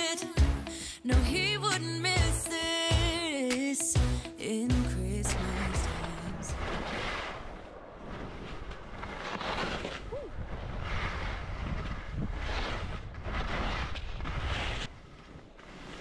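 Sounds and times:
skis scraping over snow: 5.3s - 16.0s
wind rumble on microphone: 5.4s - 15.3s.

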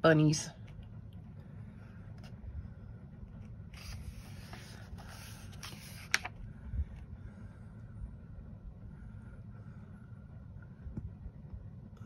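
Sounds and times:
paper page turning: 3.7s - 6.4s.

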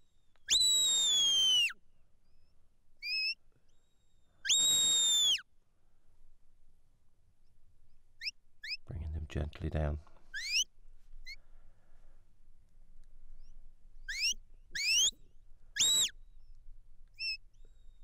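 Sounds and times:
person whistling commands: 0.5s - 1.8s, 4.5s - 5.4s, 15.8s - 16.1s.

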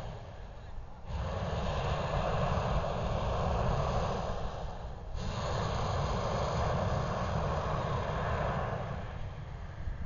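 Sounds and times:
wind rumble on microphone: 0.0s - 10.0s.

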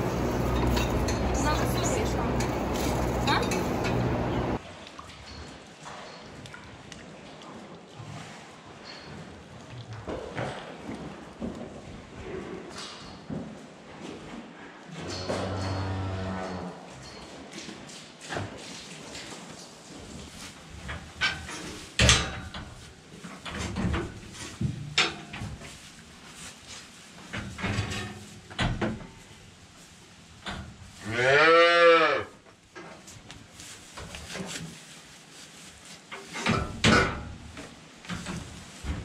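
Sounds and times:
knocks and clatter: 0.0s - 4.6s
cow mooing: 15.2s - 16.7s.

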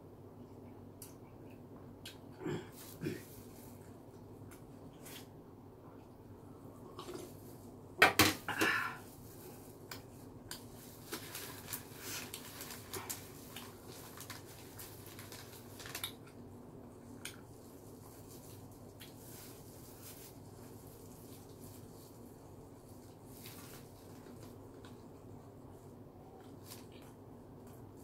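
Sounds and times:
plastic gloves and paper crinkling: 9.0s - 16.4s, 17.0s - 25.8s.

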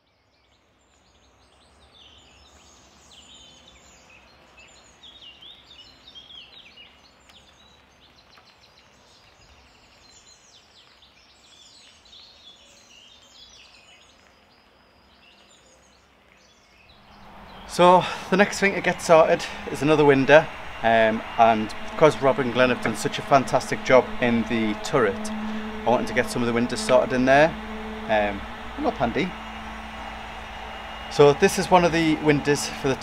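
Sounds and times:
songbirds chirping and trilling: 0.2s - 20.0s.

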